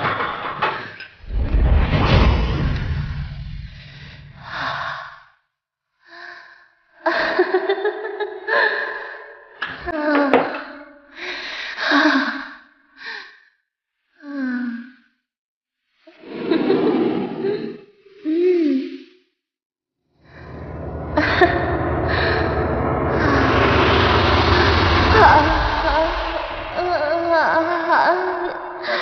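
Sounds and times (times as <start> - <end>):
low rumble: 1.2 - 4.9, 20.2 - 28.6.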